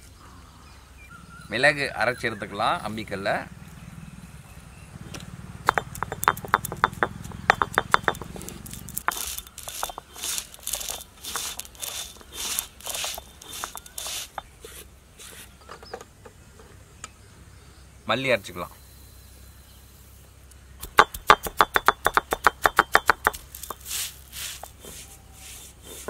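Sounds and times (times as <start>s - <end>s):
stone roller scraping: 5.6s - 15.5s, 20.8s - 26.0s
peppercorns crackling and popping: 5.7s - 14.7s, 20.8s - 26.0s.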